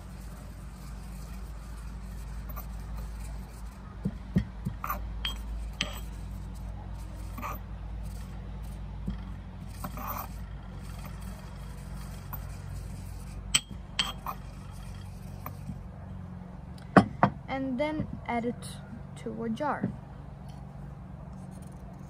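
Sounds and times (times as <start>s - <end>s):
low steady hum: 0.0s - 22.0s
pestle grinding in mortar: 9.0s - 15.8s.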